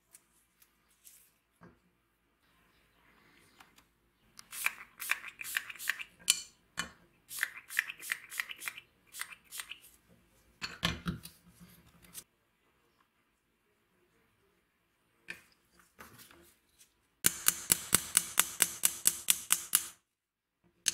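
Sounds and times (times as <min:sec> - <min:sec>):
spray bottle squirting: 0:04.4 - 0:06.1, 0:07.3 - 0:09.8.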